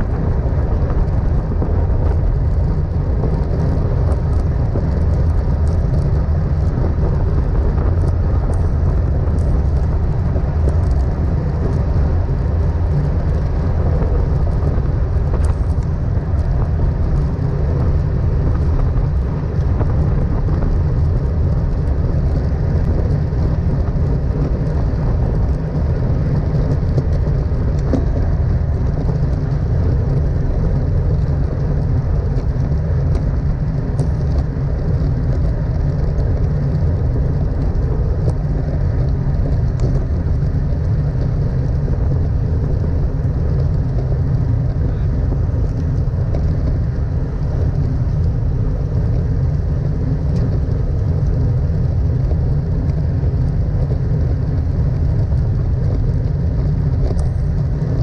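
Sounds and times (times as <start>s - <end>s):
road noise: 0.0s - 58.0s
wind rush on microphone: 0.0s - 58.0s.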